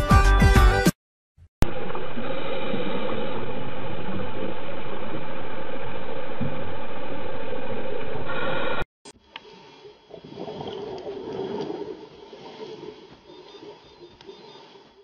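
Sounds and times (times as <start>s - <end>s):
engine droning underwater: 1.6s - 8.8s
water noise: 1.6s - 15.0s.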